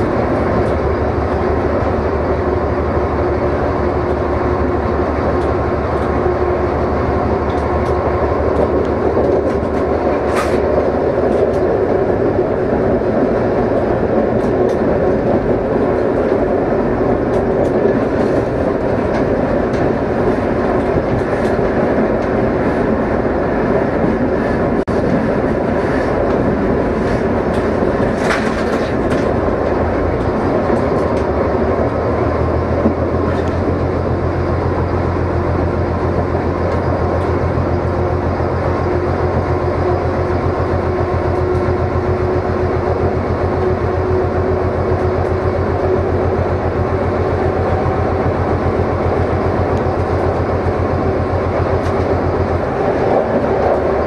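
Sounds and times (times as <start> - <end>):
diesel engine running: 0.0 - 54.0
wheels clicking over rail joints: 0.0 - 54.0.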